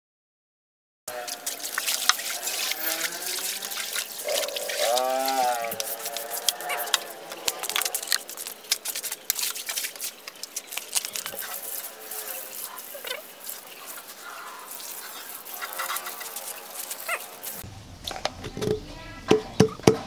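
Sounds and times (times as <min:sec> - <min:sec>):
whining animal call: 0:01.1 - 0:08.2, 0:11.4 - 0:17.6
water hiss: 0:01.1 - 0:17.6
hose water splashing on concrete: 0:01.1 - 0:17.7.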